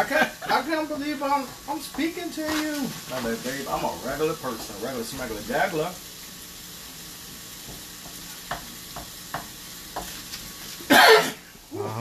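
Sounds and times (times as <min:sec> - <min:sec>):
food sizzling in a frying pan: 0:00.0 - 0:12.0
wooden spoon stirring: 0:00.6 - 0:04.9
spoon tapping against pan: 0:07.6 - 0:10.2.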